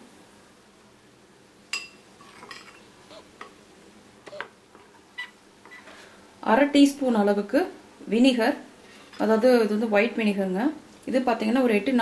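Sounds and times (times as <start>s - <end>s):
spoon clinking against glass bowl: 1.8s - 2.8s.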